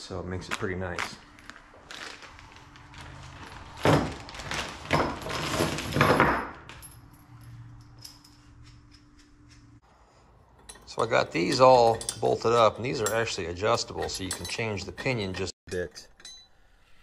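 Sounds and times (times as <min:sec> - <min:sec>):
plastic bag crinkling: 0:01.0 - 0:05.9
hardware clinking: 0:04.8 - 0:09.8, 0:10.4 - 0:16.6
nuts and bolts jingling onto metal: 0:10.6 - 0:16.4.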